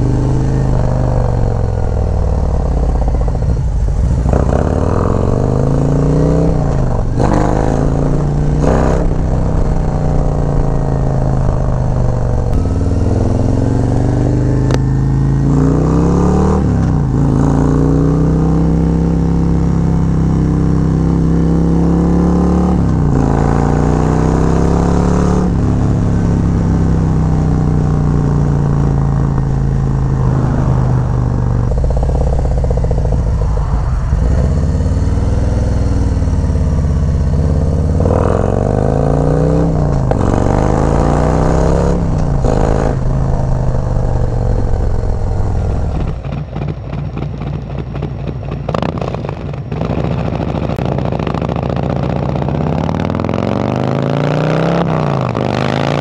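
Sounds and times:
motorcycle accelerating through gears: 0.0s - 56.0s.

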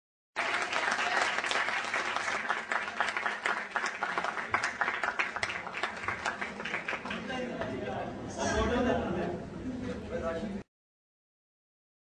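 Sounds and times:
audience applauding: 0.4s - 7.5s.

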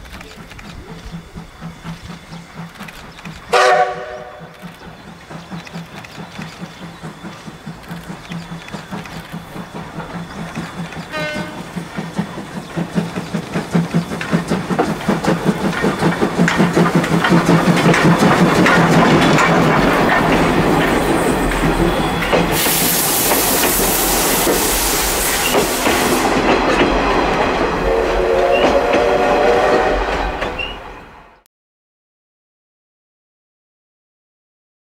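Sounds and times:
wheel clatter over rail joints: 0.0s - 27.8s
steam hissing: 0.0s - 30.5s
steam locomotive exhaust beats: 0.0s - 31.4s.

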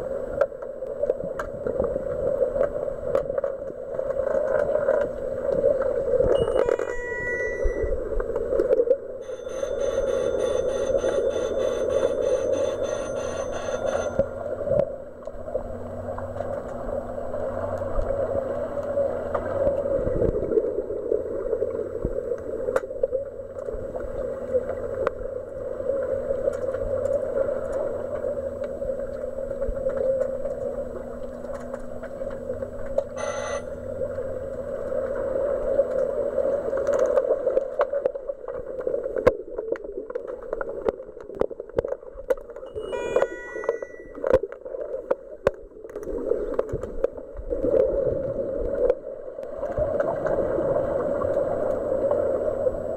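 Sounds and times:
faint hum: 0.0s - 52.9s
underwater rushing noise: 0.0s - 52.9s
short tone: 6.3s - 8.1s, 9.2s - 14.6s, 33.1s - 34.0s, 42.7s - 44.4s.

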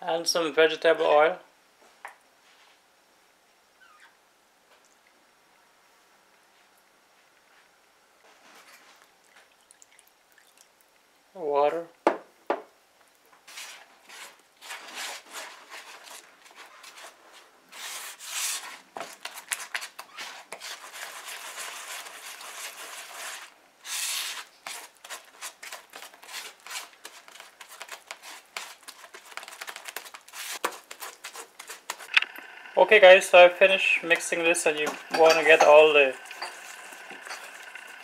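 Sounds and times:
spatula scraping mixing bowl: 13.5s - 32.1s, 32.8s - 38.0s.

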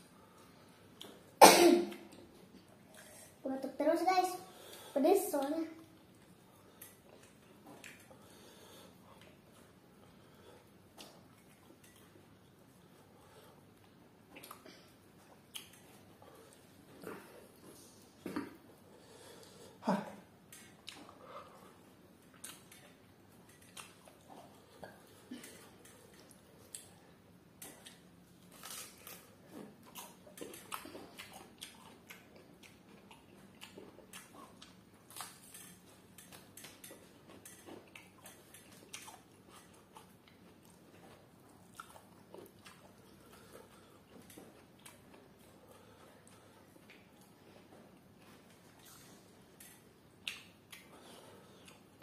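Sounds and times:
chewing and biting: 6.1s - 8.3s, 15.2s - 18.6s, 20.5s - 52.0s.

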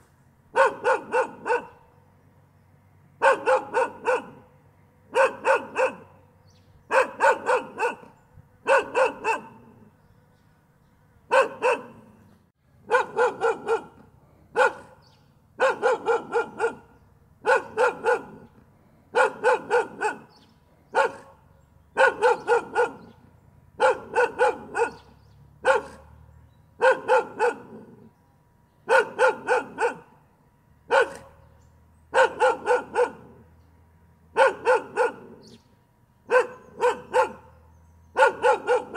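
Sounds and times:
dog barking: 0.5s - 1.9s, 3.2s - 4.5s, 5.1s - 6.2s, 6.9s - 9.9s, 11.3s - 12.2s, 12.8s - 18.5s, 19.1s - 23.2s, 23.8s - 26.2s, 26.8s - 28.1s, 28.8s - 30.2s, 30.9s - 31.4s, 32.1s - 33.4s, 34.3s - 35.6s, 36.3s - 38.9s.

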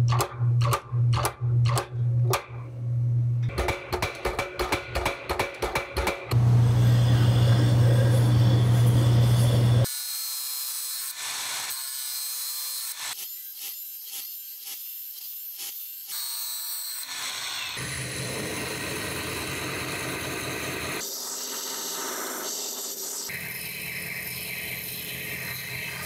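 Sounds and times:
loud low hum: 6.3s - 9.9s
belt grinder grinding steel: 6.4s - 10.1s, 10.7s - 26.0s.

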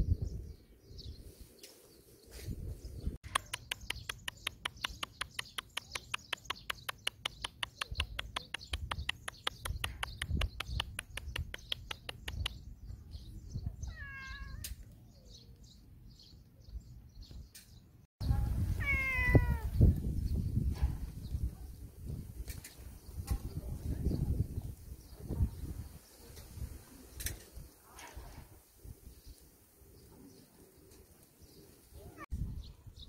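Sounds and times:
wind rumbling on microphone: 0.0s - 1.6s, 2.3s - 3.2s, 7.9s - 14.9s, 18.2s - 30.1s, 31.4s - 33.0s
cat meowing: 13.8s - 14.7s, 18.8s - 19.7s.

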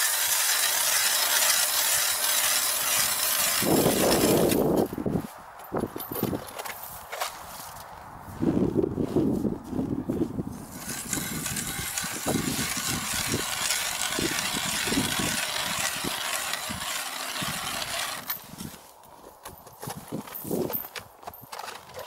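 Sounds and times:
ice auger scraping through ice: 0.0s - 4.9s, 10.6s - 18.9s.

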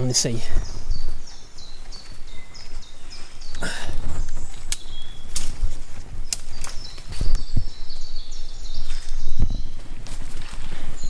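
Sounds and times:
bird singing: 0.0s - 11.0s
footsteps on tree trunk: 0.6s - 7.8s, 8.7s - 11.0s
wood cracking: 4.6s - 6.8s.

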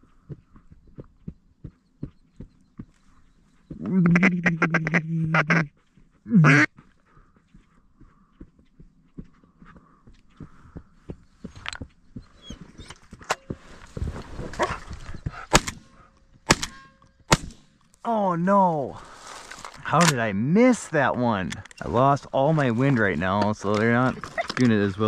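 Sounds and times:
faint ticks and rustle: 0.0s - 3.8s, 5.7s - 15.4s
duck quack: 3.9s - 5.7s, 6.4s - 6.7s
shotgun shots: 15.5s - 15.9s, 16.5s - 17.7s.

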